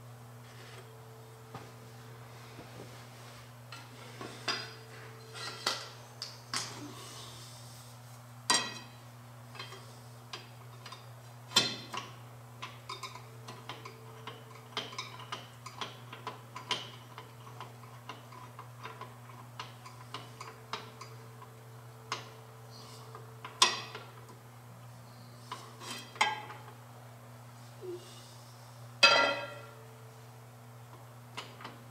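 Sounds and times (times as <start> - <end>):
metallic knocks: 29.0 - 29.8.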